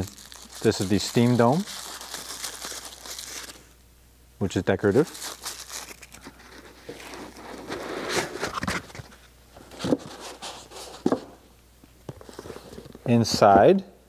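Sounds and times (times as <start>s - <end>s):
cardboard box scraping: 6.4s - 9.0s.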